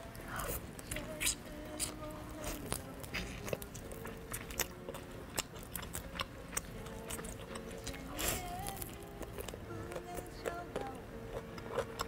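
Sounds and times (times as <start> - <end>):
crunching fried chicken: 0.1 - 12.0.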